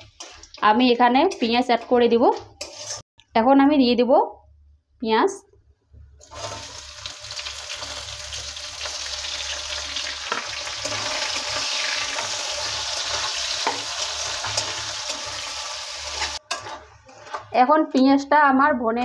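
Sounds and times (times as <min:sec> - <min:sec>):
metal spatula scraping a pan: 0:00.0 - 0:03.1, 0:10.2 - 0:17.7
onions sizzling in hot oil: 0:06.3 - 0:16.5.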